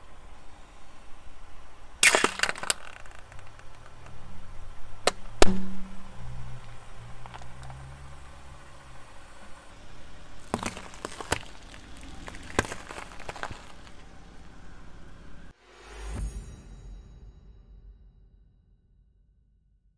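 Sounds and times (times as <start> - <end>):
car low hum: 0.0 - 15.5
tyre cracking and crunching objects: 2.0 - 4.4, 5.1 - 8.9, 10.1 - 15.5.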